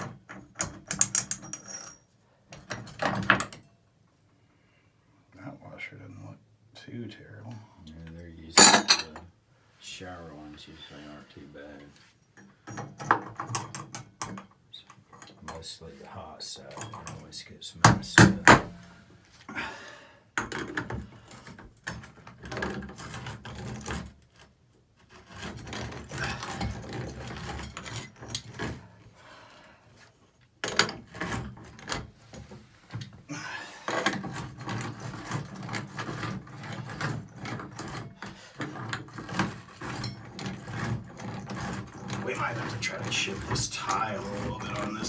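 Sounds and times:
metal clicks and knocks: 0.0 - 1.9, 12.4 - 15.7
hand tools scraping: 20.6 - 45.0.

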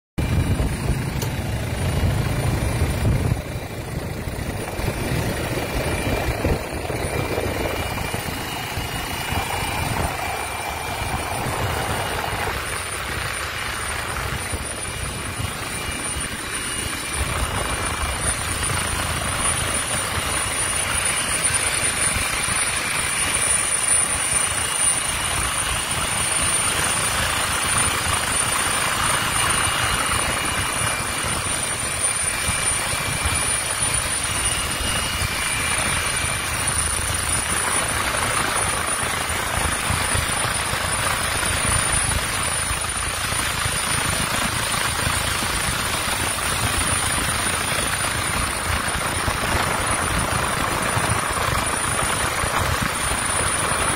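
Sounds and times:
high whine: 0.2 - 23.1
helicopter engine and rotor noise: 0.2 - 53.9.

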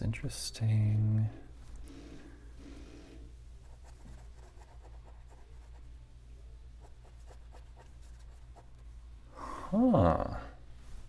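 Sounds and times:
pen scratching on paper: 3.6 - 5.8.

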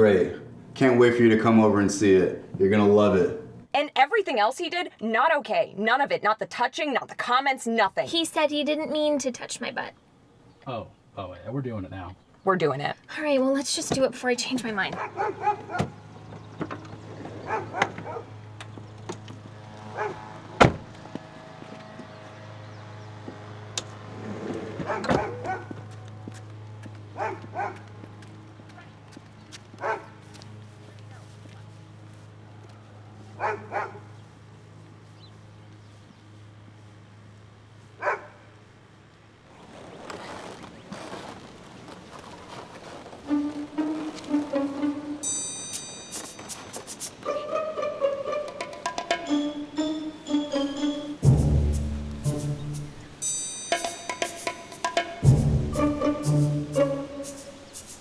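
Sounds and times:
dog barking: 14.9 - 15.9, 17.4 - 18.4, 19.9 - 20.3, 24.8 - 25.8, 27.2 - 27.9, 29.8 - 30.2, 33.4 - 34.1, 38.0 - 38.5, 47.2 - 47.6
gate rustling and knocking: 14.9 - 19.4
loud thump: 20.6 - 20.9.

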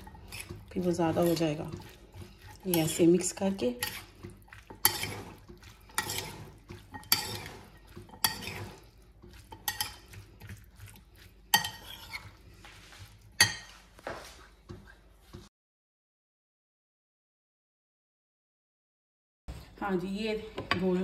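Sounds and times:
metal utensil clinking in bowl: 6.0 - 8.8.

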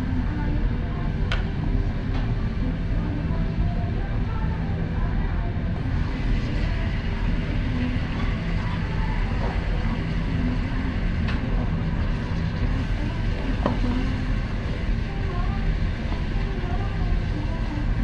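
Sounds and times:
restaurant rumble: 0.0 - 18.0.

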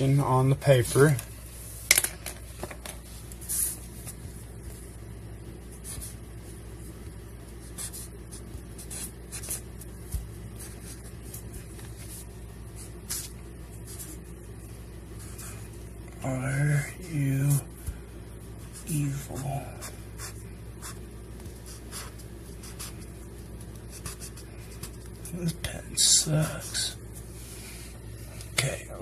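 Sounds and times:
steady low hum: 0.0 - 29.0
pen scratching on paper: 7.5 - 14.2, 18.6 - 21.0, 21.6 - 23.1, 23.8 - 25.0.

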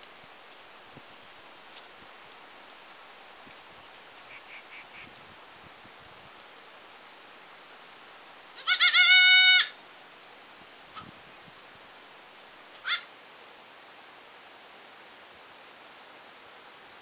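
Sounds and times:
baby goats bleating: 8.6 - 9.7.

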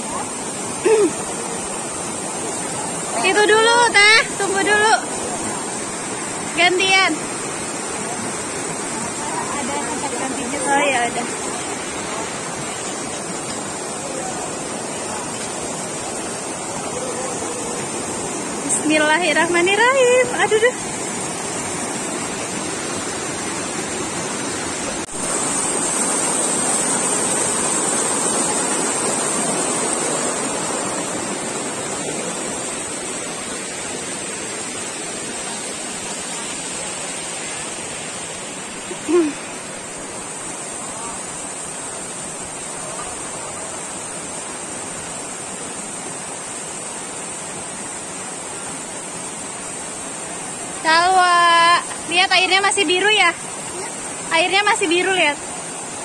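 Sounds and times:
river rapids rushing over rocks: 0.0 - 56.0.

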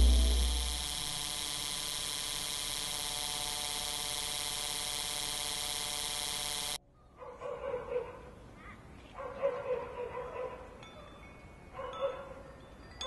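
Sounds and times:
deep low drone: 0.0 - 1.6
buzzing hum with hiss: 0.0 - 6.8.

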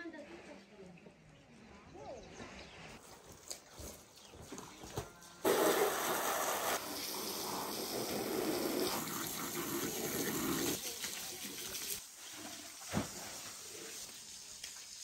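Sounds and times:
garden hose spraying water: 3.0 - 15.0.

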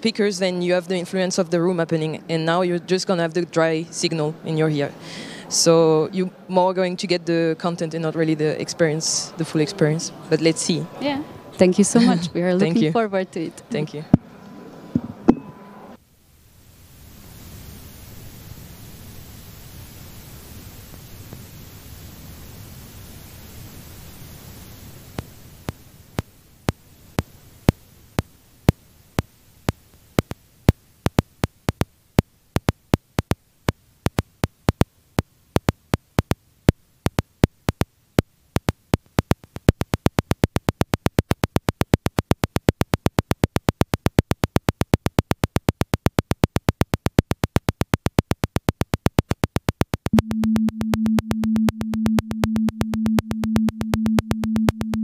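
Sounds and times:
electronic clicks in polyrhythm: 25.7 - 55.0
low pulsing sine tone: 47.4 - 55.0.

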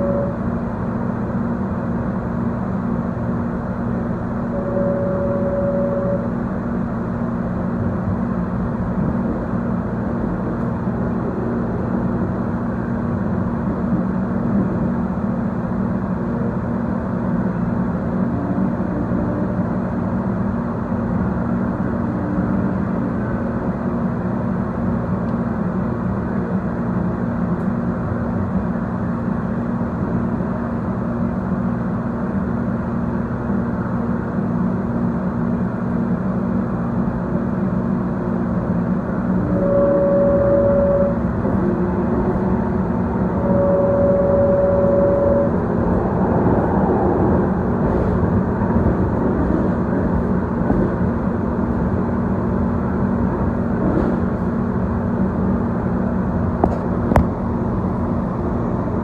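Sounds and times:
light rail car rumbling: 0.0 - 59.0.

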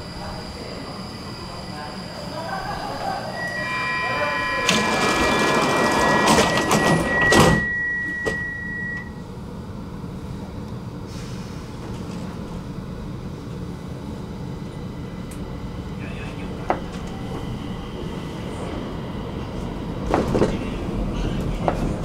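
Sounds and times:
high warning beep: 0.0 - 9.2
train low rumble: 0.0 - 22.0
sliding doors shutting with thud: 4.6 - 8.5.

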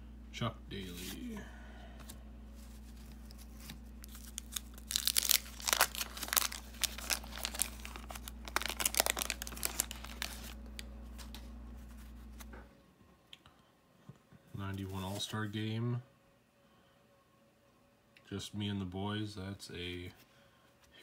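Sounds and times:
paper wrapper tearing: 2.8 - 12.1.

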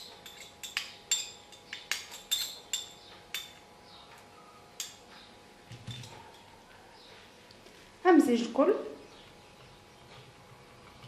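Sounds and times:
spoon clinking in glass pitcher: 0.0 - 3.6.

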